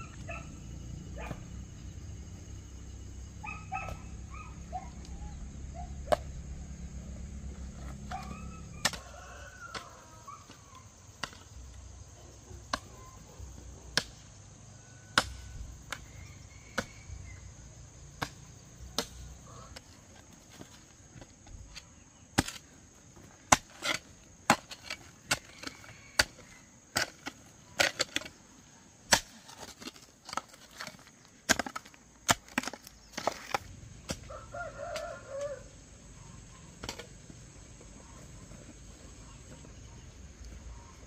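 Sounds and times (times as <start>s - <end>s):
high insect drone: 0.0s - 22.0s
hand hoe chopping into soil: 18.2s - 19.9s, 20.5s - 22.7s, 23.3s - 28.4s, 29.1s - 34.3s
birds chirping: 32.8s - 41.0s.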